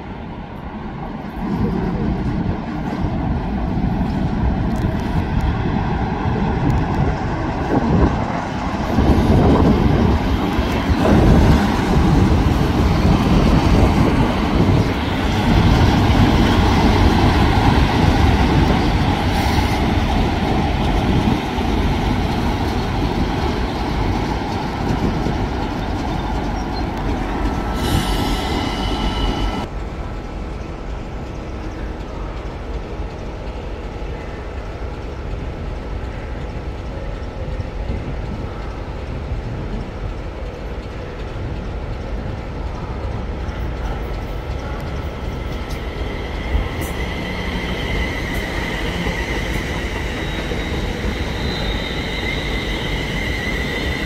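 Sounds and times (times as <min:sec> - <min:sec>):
train running on rails: 0:00.0 - 0:54.0
high squeal: 0:27.6 - 0:29.7, 0:45.3 - 0:54.0.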